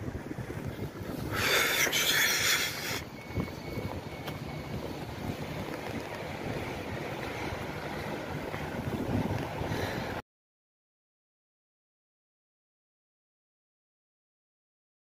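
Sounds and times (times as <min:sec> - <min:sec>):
street traffic rumble: 0:00.0 - 0:10.2.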